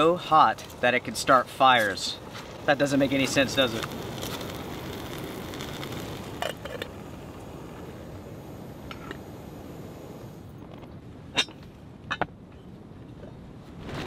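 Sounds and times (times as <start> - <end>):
gas stove burner hissing: 0.0 - 10.6.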